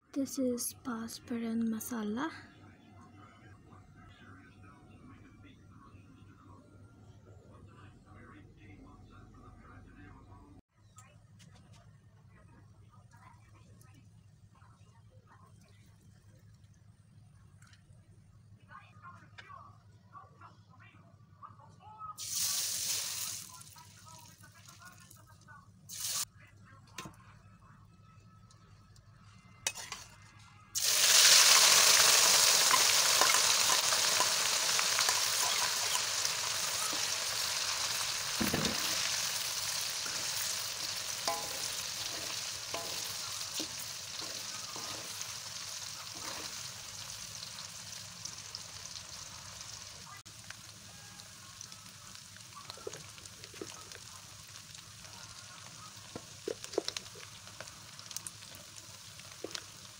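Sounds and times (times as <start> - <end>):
hot oil sizzling in wok: 22.2 - 25.0, 25.8 - 26.3, 30.8 - 59.9
spatula scraping against pan: 46.0 - 46.7.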